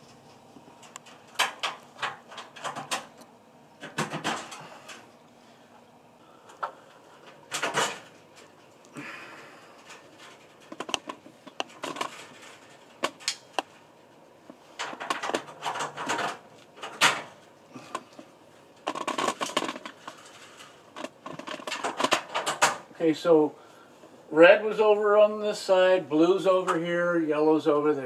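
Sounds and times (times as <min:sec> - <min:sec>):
wires clicking and scraping: 0:00.0 - 0:05.8, 0:06.4 - 0:22.9.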